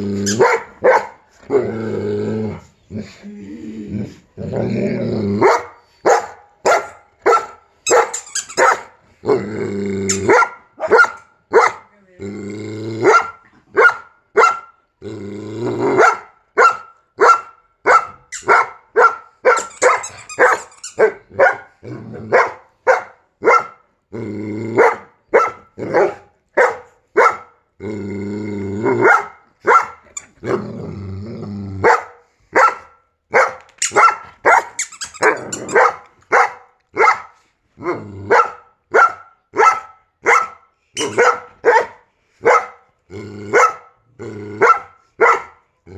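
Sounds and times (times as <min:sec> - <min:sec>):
dog growling: 0:00.0 - 0:00.7, 0:01.3 - 0:05.7, 0:09.2 - 0:10.4, 0:12.2 - 0:13.7, 0:15.0 - 0:16.2, 0:21.8 - 0:22.4, 0:24.1 - 0:25.1, 0:27.8 - 0:29.2, 0:30.1 - 0:31.9, 0:37.7 - 0:38.4, 0:43.0 - 0:44.9
dogs barking: 0:00.3 - 0:01.2, 0:05.4 - 0:08.9, 0:10.3 - 0:11.9, 0:13.0 - 0:14.8, 0:16.0 - 0:21.7, 0:22.3 - 0:23.8, 0:24.8 - 0:27.6, 0:29.0 - 0:30.0, 0:31.8 - 0:37.4, 0:38.3 - 0:42.8, 0:43.5 - 0:44.0, 0:44.6 - 0:45.6.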